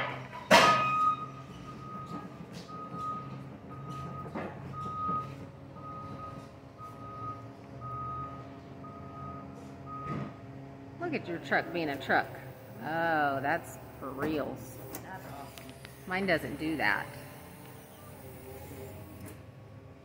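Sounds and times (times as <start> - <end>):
forklift warning beeper: 0.8 - 10.4.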